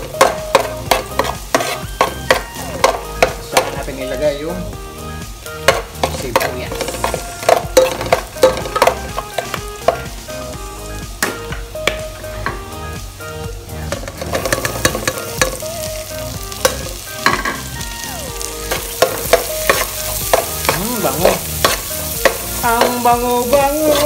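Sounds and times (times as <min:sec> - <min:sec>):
garlic sizzling in hot oil: 0:00.0 - 0:24.0
metal spoon scraping a pot: 0:00.2 - 0:03.0, 0:06.0 - 0:10.0.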